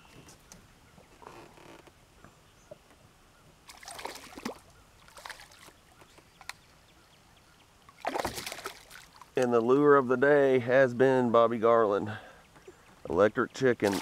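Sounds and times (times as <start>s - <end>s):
fish splashing in water: 3.7s - 5.8s, 7.9s - 9.3s.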